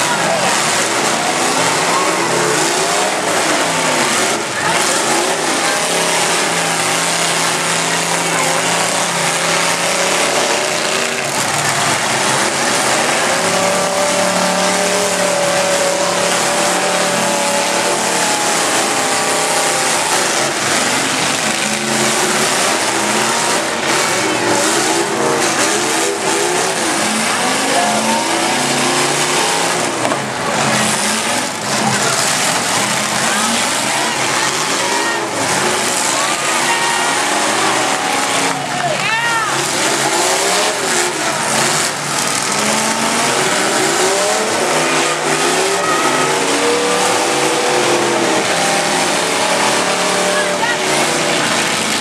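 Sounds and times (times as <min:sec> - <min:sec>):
car engines revving: 0:00.0 - 0:52.0.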